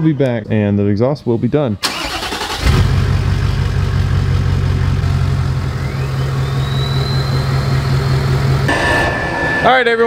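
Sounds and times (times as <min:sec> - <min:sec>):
diesel engine idling: 0:01.8 - 0:08.7.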